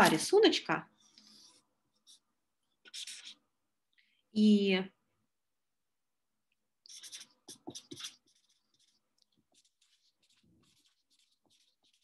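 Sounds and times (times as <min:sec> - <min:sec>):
pen scratching on paper: 0:01.2 - 0:02.2, 0:02.8 - 0:03.4, 0:06.8 - 0:12.0.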